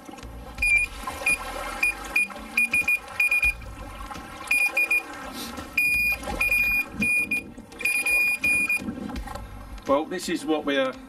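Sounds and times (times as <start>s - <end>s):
electronic bite alarm beeping: 0.6s - 3.6s, 4.5s - 5.1s, 5.8s - 8.8s.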